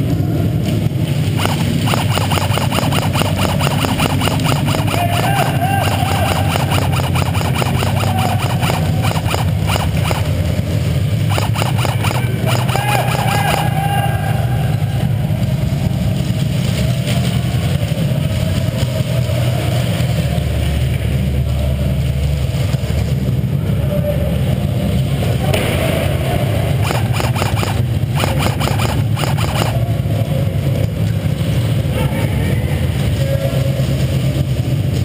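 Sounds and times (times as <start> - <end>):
rapid sharp clicks: 1.4 - 10.4, 11.3 - 13.8, 26.8 - 29.8.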